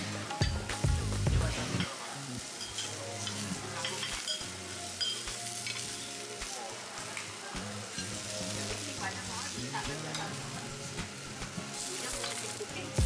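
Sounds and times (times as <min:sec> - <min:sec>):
grill sizzling: 0:00.0 - 0:13.0
ceramic tableware clinking: 0:05.0 - 0:05.9.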